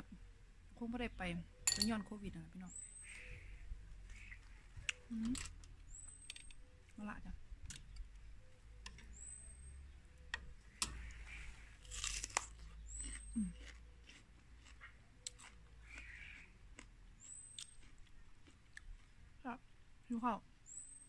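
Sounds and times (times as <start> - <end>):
crunchy chewing: 11.0 - 19.4.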